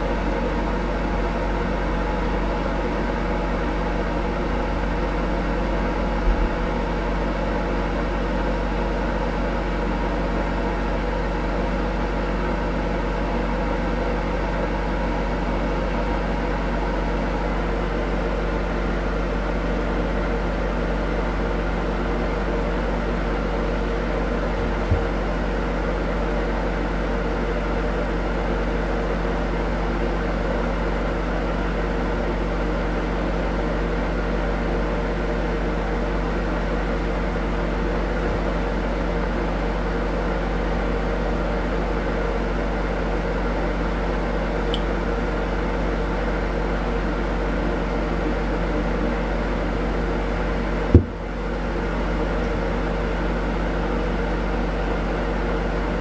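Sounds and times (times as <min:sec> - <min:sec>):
mechanical hum with low drone: 0:00.0 - 0:56.0
small click: 0:44.7 - 0:44.9
short knock: 0:50.9 - 0:51.2.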